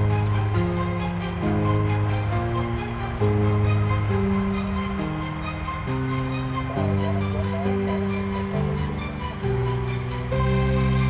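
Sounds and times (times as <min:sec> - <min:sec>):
music with held chords: 0:00.0 - 0:11.0.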